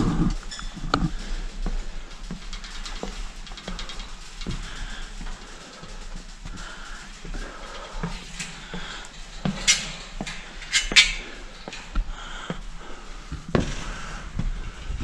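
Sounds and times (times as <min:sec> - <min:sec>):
footsteps on wooden stairs: 0:06.1 - 0:15.0.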